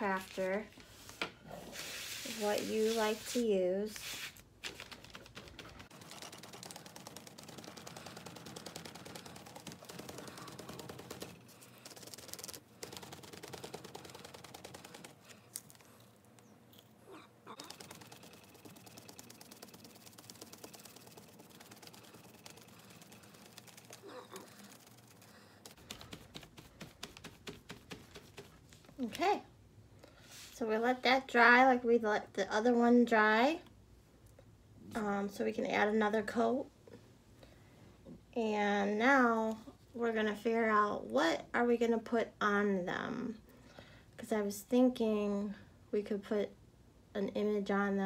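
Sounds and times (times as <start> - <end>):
sponge patting on canvas: 17.6 - 28.9.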